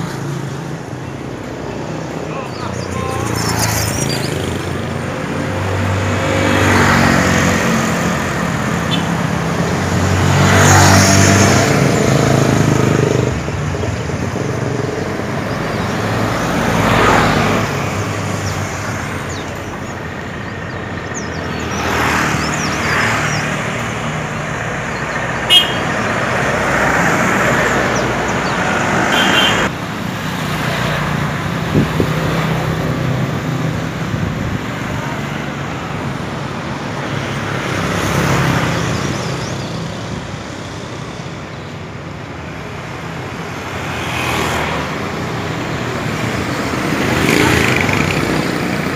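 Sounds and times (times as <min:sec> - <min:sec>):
motorcycles passing: 0:00.0 - 0:48.9
trucks passing: 0:00.0 - 0:48.9
vehicle horn toot: 0:25.5 - 0:26.0, 0:29.1 - 0:29.7.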